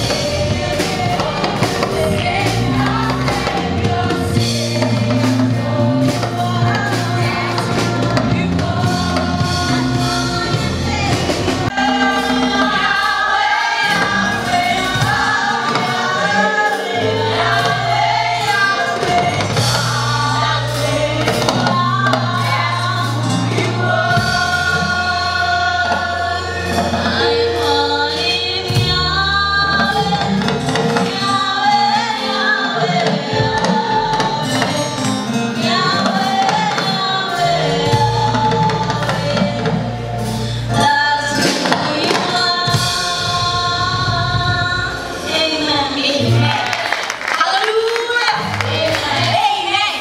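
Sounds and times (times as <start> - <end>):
low bass notes: 0.0 - 31.0
gospel choir singing: 0.0 - 50.0
keyboards and drum kit: 0.0 - 50.0.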